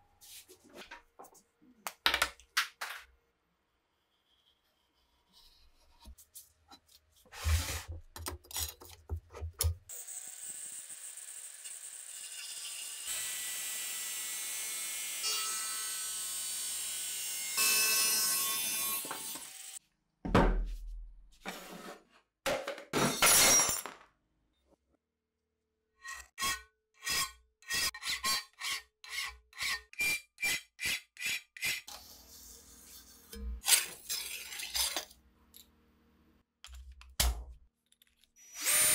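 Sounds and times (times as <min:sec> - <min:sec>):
angle grinder cutting steel: 0:09.9 - 0:19.8.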